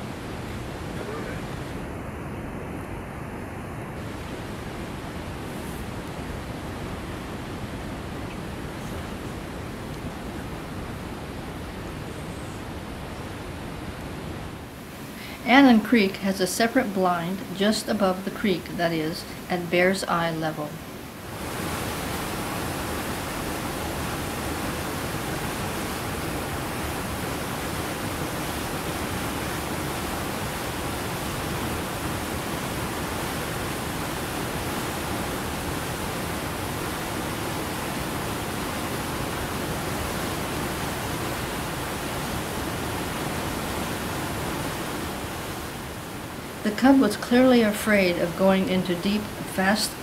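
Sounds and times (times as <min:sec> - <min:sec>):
creek rushing over rocks: 0:16.9 - 0:50.0.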